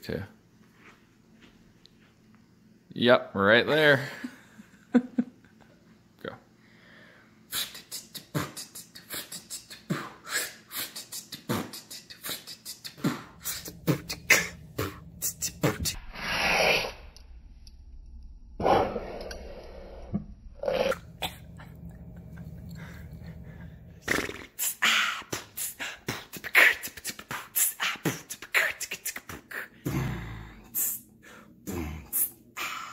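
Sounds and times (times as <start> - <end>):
woman beatboxing: 7.5 - 16.0, 24.0 - 30.0.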